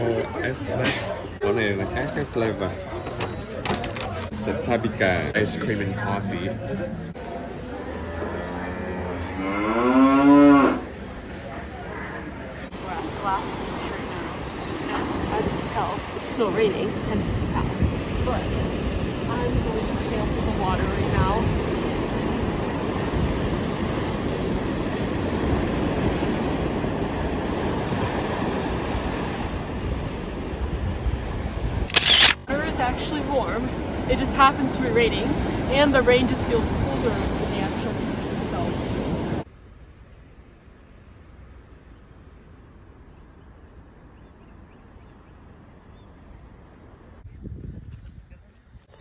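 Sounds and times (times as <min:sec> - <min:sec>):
steady outdoor hiss: 0:10.1 - 0:49.0
ocean surf on beach: 0:11.7 - 0:39.5
wind buffeting microphone: 0:13.9 - 0:39.4, 0:47.1 - 0:49.0.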